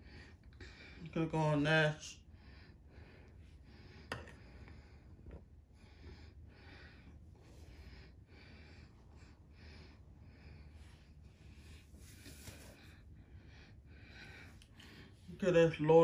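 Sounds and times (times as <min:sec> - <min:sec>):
soft breathing: 0:02.2 - 0:15.6.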